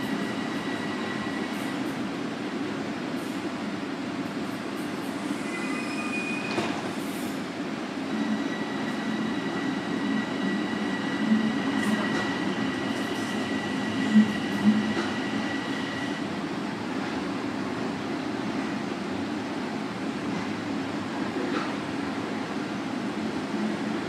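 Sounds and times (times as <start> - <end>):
subway train rumble: 0.0 - 24.0
high squeal: 5.4 - 6.6.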